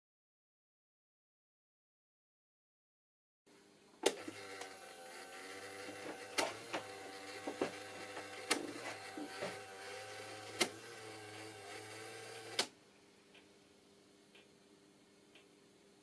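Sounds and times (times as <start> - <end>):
small electric motor whining: 4.1 - 12.7
sharp clicks: 12.5 - 12.7.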